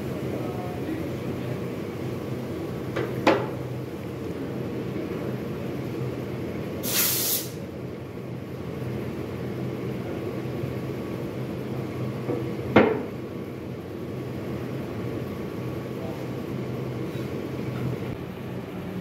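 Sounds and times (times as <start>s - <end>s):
factory machinery hum: 0.0s - 19.0s
hiss burst: 6.8s - 7.6s.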